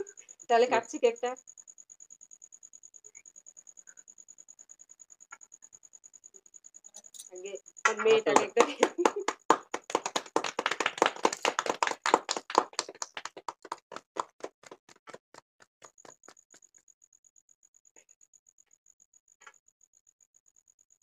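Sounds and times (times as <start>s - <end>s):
group clapping in rhythm: 7.9s - 16.6s.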